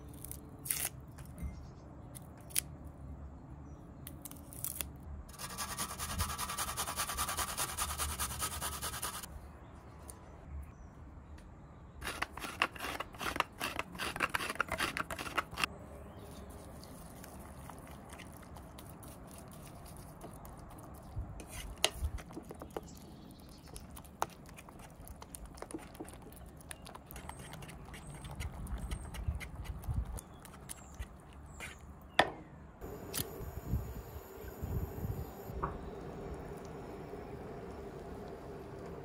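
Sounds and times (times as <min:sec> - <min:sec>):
fork scraping in wooden bowl: 0:12.0 - 0:15.7.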